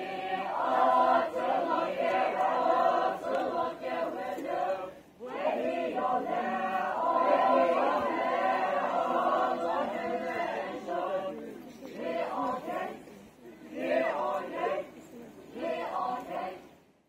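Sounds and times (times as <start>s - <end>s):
group singing a chant in unison: 0.0s - 16.8s.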